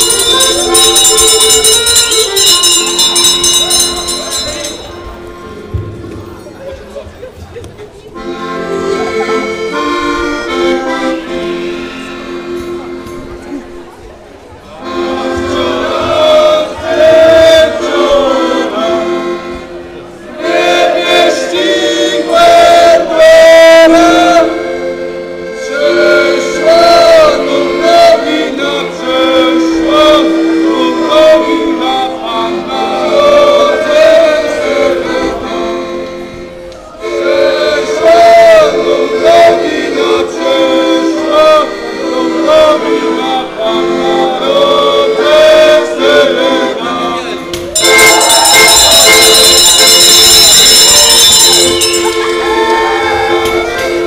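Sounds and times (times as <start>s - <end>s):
carolers singing together: 0.0s - 6.0s, 8.2s - 13.7s, 14.6s - 54.0s
instrument holding steady notes: 0.0s - 6.8s, 23.8s - 54.0s.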